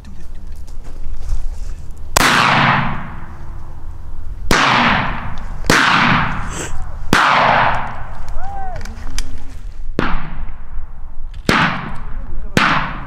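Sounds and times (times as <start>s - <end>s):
echoing gunshots: 2.2s - 3.3s, 4.5s - 6.5s, 7.1s - 8.1s, 10.0s - 13.0s.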